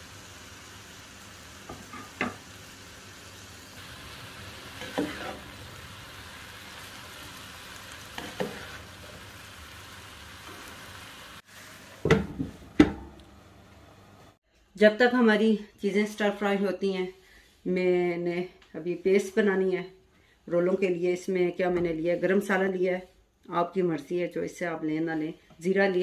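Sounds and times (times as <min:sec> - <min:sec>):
vegetables sizzling in a pan: 0:00.0 - 0:14.4.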